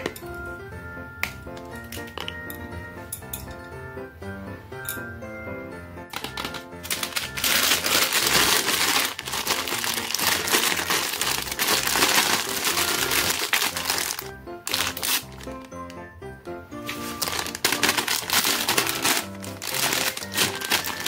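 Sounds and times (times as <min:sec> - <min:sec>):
background music: 0:00.0 - 0:21.0
plastic packet crinkling: 0:06.2 - 0:16.0, 0:16.8 - 0:21.0.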